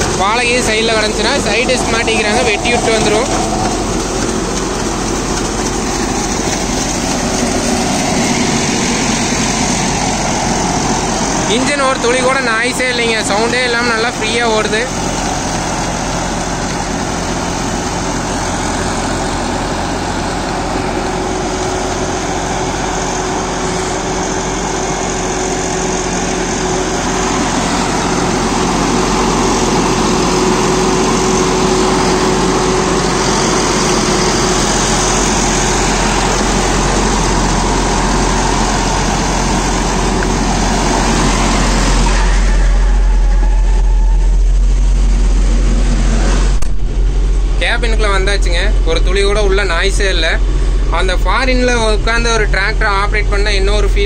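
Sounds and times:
rotary tiller mulching: 0.0s - 43.2s
tractor diesel engine running: 0.0s - 54.0s.

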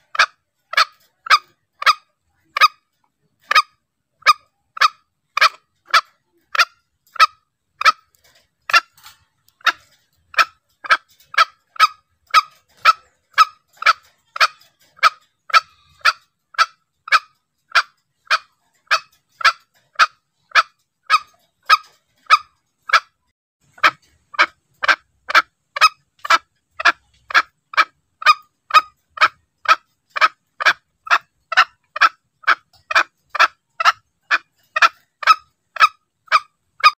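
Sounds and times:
junglefowl calling: 0.0s - 2.8s, 3.4s - 8.1s, 8.7s - 37.0s.

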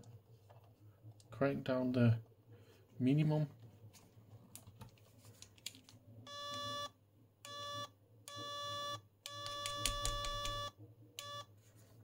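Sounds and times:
power supply alarm beeping: 6.3s - 11.5s.

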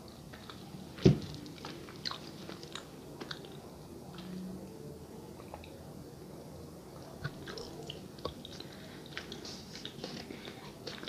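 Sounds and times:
chewing with wet clicks: 1.4s - 4.4s, 5.4s - 5.8s, 7.0s - 11.0s.

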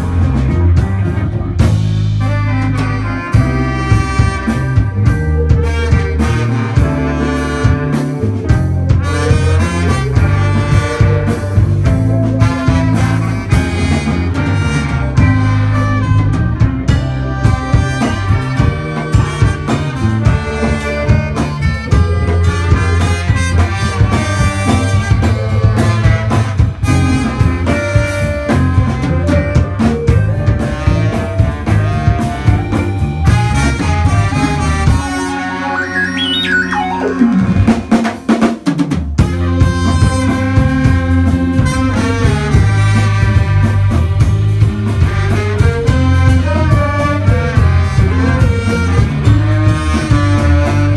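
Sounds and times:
horn section playing: 0.0s - 38.6s, 39.2s - 50.9s
drum kit: 0.0s - 50.9s
electric bass: 0.0s - 50.9s
electric guitar: 0.0s - 50.9s
keytar synthesizer: 35.0s - 38.1s.

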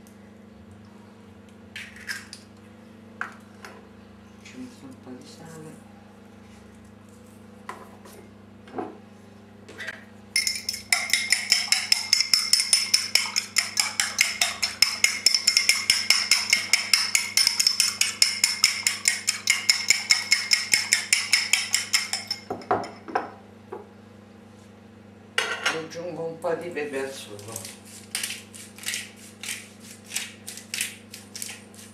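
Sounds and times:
fork beating egg in bowl: 10.4s - 22.6s, 27.3s - 31.9s.

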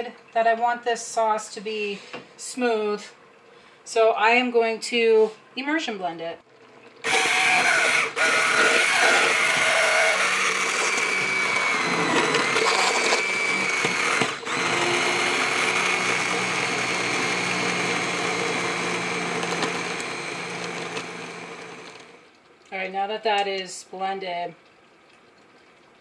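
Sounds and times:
immersion blender motor whine: 7.0s - 22.2s.

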